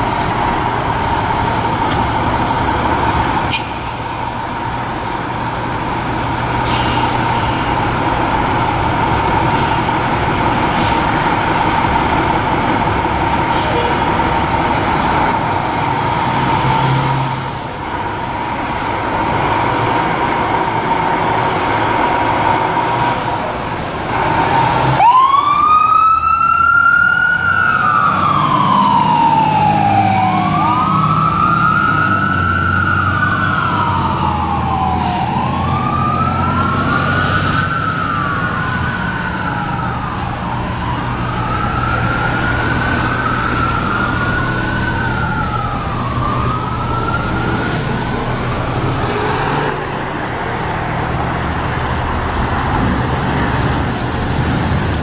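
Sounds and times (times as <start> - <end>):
truck engine rumble: 0.0 - 55.0
siren wailing: 24.4 - 49.4.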